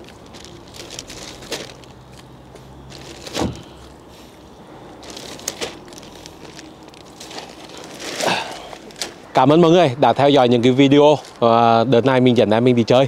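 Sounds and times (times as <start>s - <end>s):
plastic bag rustling: 0.0s - 9.3s.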